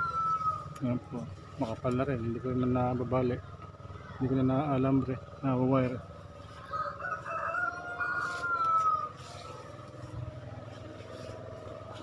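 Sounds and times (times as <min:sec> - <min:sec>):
rooster crowing: 0:00.0 - 0:00.8, 0:06.4 - 0:10.1.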